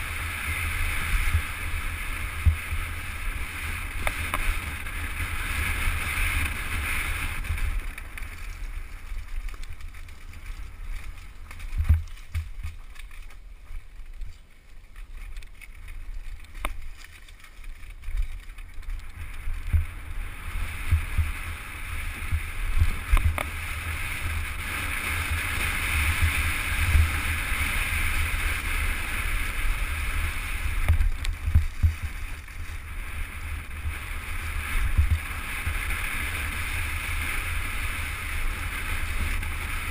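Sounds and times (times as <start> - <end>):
bike tyre and frame rumble: 0.0 - 39.9
bike knocks and rattles: 2.2 - 20.0, 20.7 - 24.0, 30.6 - 32.6, 34.8 - 35.8
wind buffeting microphone: 18.0 - 39.9.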